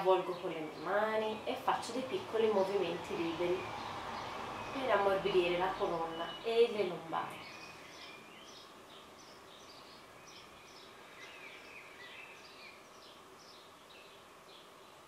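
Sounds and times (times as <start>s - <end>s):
bird chirping: 0.0s - 15.0s
low steady hiss: 0.0s - 15.0s.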